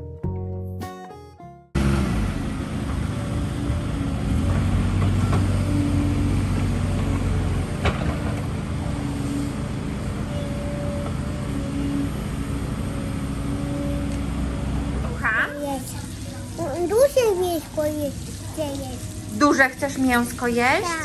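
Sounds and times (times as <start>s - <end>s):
low hum: 1.8s - 16.6s
diesel construction machinery running: 1.8s - 21.0s.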